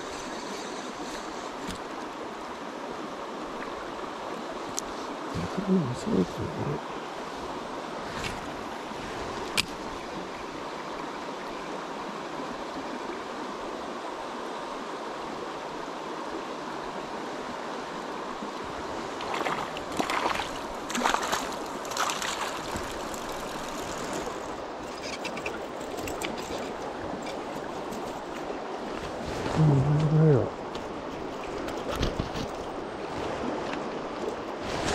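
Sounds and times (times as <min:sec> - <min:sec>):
shallow river flowing over stones: 0:00.0 - 0:34.9
splashing in water: 0:19.2 - 0:28.1.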